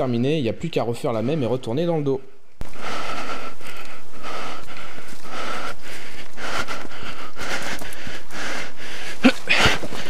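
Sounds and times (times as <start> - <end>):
heavy hard breathing: 2.6 - 10.0
clothing and gear rustling: 9.1 - 10.0.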